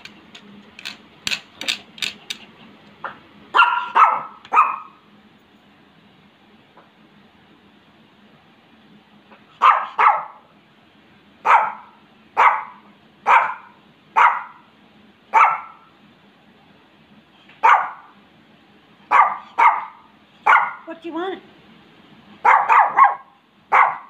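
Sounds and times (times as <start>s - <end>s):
small dog barking: 3.5s - 5.0s, 9.6s - 10.4s, 11.4s - 14.7s, 15.3s - 15.9s, 17.6s - 18.1s, 19.1s - 20.9s, 22.4s - 24.0s.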